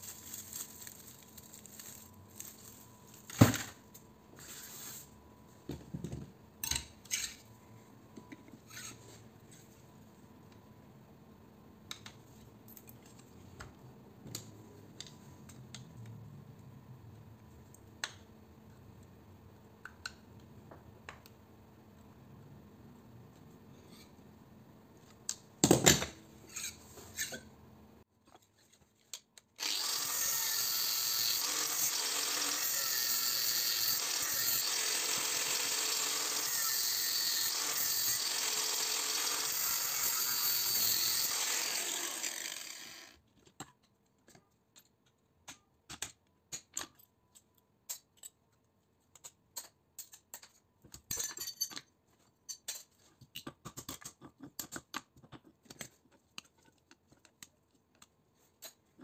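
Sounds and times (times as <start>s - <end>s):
angle grinder cutting steel: 29.6s - 43.2s.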